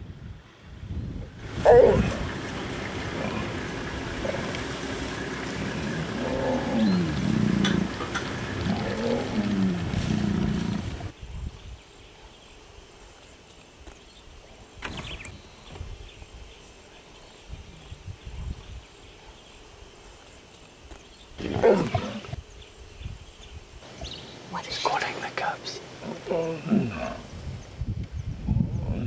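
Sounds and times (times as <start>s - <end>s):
lion calling: 1.5s - 11.1s, 21.4s - 22.4s
lion growling: 1.5s - 11.1s, 21.4s - 22.4s, 26.0s - 27.3s
lion grunting: 1.6s - 4.7s, 5.4s - 11.1s, 21.4s - 22.4s, 26.0s - 27.3s.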